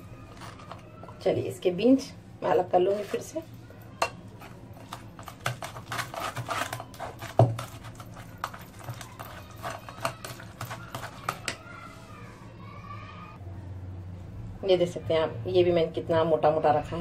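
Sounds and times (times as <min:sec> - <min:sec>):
spoon scraping metal strainer: 0:04.4 - 0:11.6.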